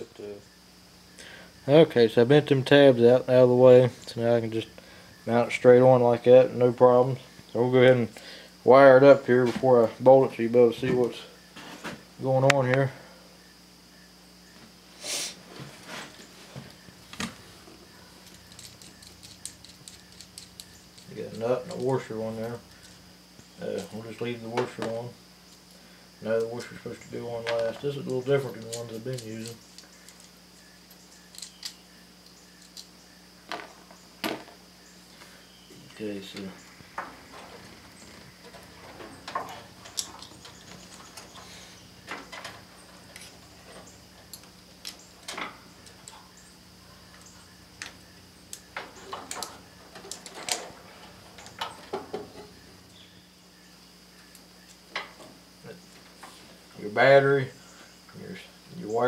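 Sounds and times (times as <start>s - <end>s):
faint steady hum: 0.0s - 59.0s
metal terminals clicking: 18.2s - 23.0s.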